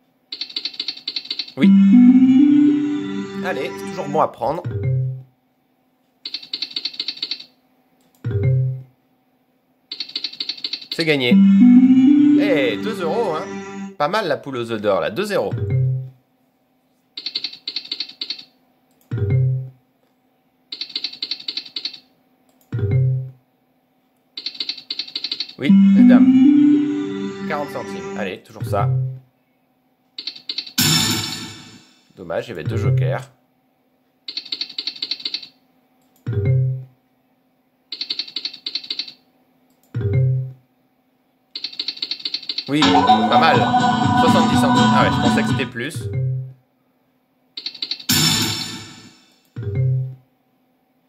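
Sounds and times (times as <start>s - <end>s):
slot reels clicking: 0.3s - 1.6s.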